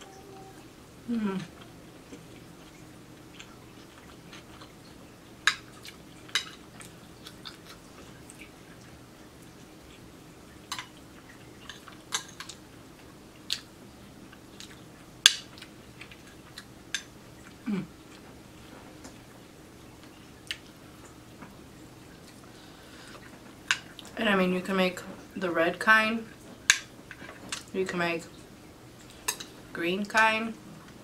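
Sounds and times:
soft chewing: 1.2 - 24.2.

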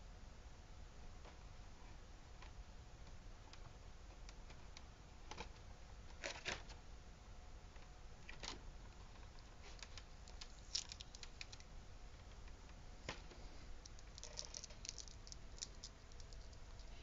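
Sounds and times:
plastic packaging crinkling: 9.8 - 11.6, 13.9 - 17.0.

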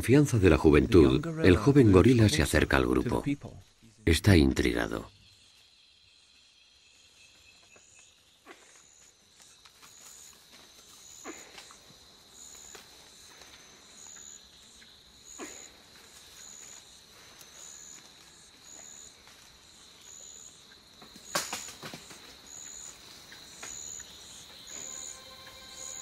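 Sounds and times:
steady high insect drone: 0.0 - 26.0
insect short high chirps: 20.1 - 26.0.

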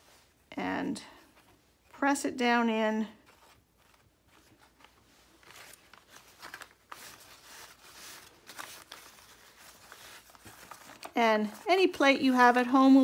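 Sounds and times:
paper towel crinkling: 3.1 - 13.0.

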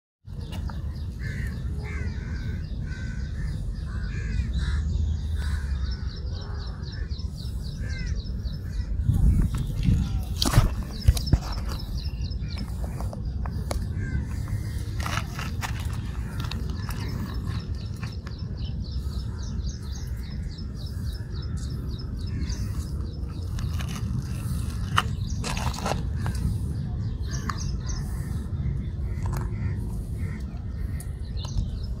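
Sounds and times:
birds calling: 0.3 - 32.0
steady low rumble: 0.3 - 32.0.

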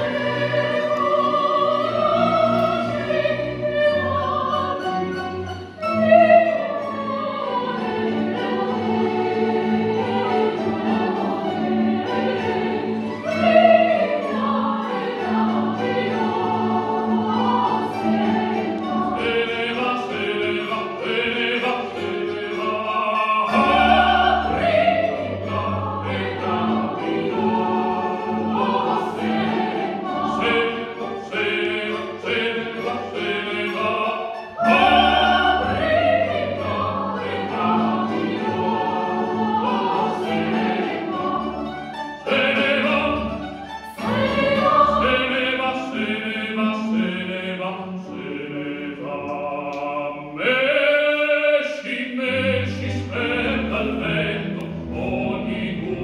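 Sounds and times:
solo singers with vibrato: 0.0 - 5.2, 5.8 - 8.7, 10.0 - 41.5
mandolin and guitar orchestra: 0.0 - 50.2, 52.1 - 56.0
mixed choir singing: 0.0 - 56.0.

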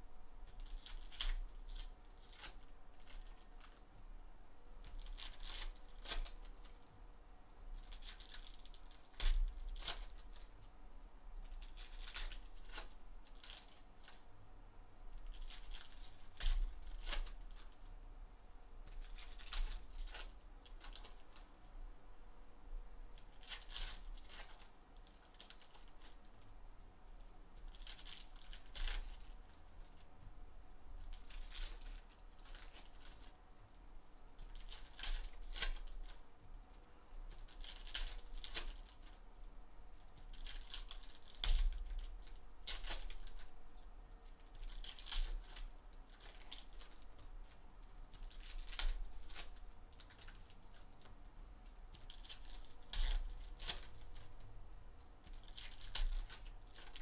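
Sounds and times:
foil wrappers tearing and crinkling: 0.5 - 3.8, 4.8 - 6.8, 7.8 - 10.6, 11.4 - 14.2, 15.2 - 17.8, 18.9 - 21.4, 23.2 - 26.2, 27.6 - 30.0, 31.0 - 33.3, 34.4 - 36.2, 37.3 - 39.2, 40.0 - 43.5, 44.2 - 51.0, 51.9 - 54.4, 55.2 - 57.0.

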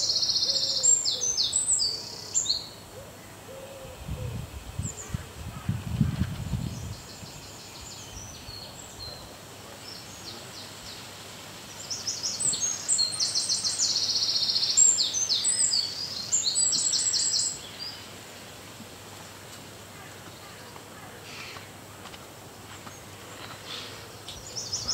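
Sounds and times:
songbird singing fast trills: 0.0 - 2.8, 11.7 - 18.1.

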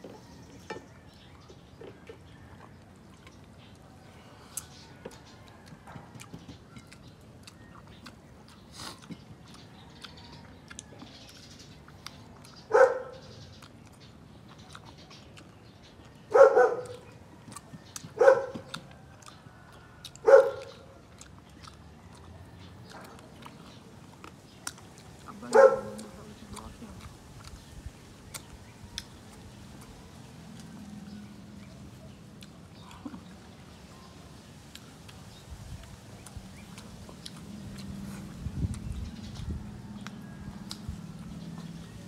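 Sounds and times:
dog chewing and mouth clicks: 0.0 - 42.0
dog barking: 12.7 - 13.3, 16.3 - 17.0, 18.2 - 18.7, 20.2 - 20.8, 25.5 - 26.1.

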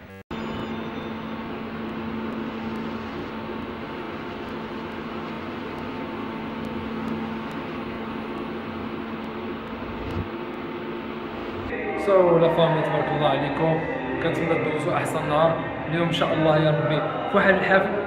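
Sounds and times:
elevator humming: 0.0 - 13.1
low held tone: 0.0 - 17.3.

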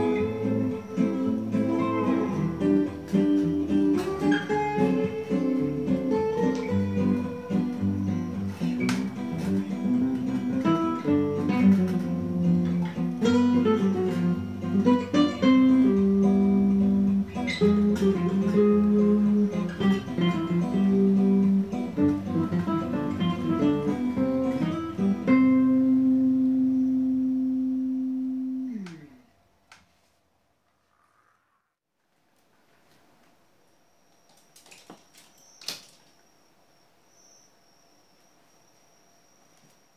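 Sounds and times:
plucked guitar music: 0.0 - 29.2.

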